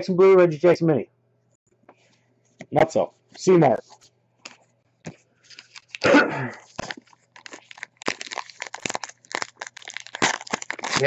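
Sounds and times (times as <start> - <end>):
cards and wrapper crinkling: 5.1 - 11.0.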